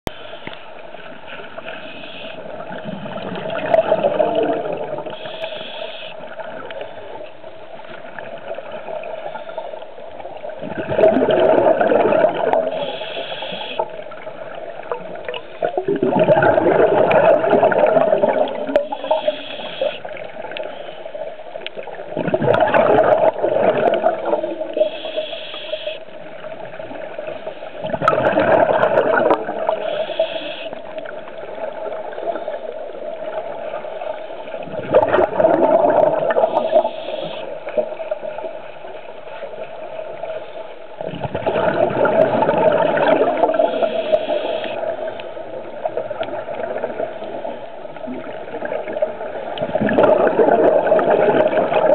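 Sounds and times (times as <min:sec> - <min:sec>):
regulator hissing inhale: 0:01.7 - 0:02.4, 0:05.1 - 0:06.3, 0:12.7 - 0:13.9, 0:18.9 - 0:21.1, 0:24.7 - 0:26.2, 0:29.8 - 0:30.9, 0:36.5 - 0:37.7, 0:43.6 - 0:44.9
bubbling exhale underwater: 0:02.3 - 0:05.7, 0:10.5 - 0:14.2, 0:14.9 - 0:20.5, 0:22.0 - 0:25.3, 0:27.8 - 0:33.9, 0:34.6 - 0:38.3, 0:41.0 - 0:51.9.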